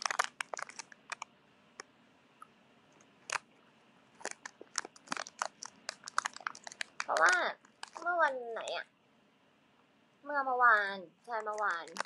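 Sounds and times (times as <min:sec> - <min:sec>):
faint room hiss: 0:00.0 - 0:12.0
sharp clicks: 0:04.2 - 0:08.0.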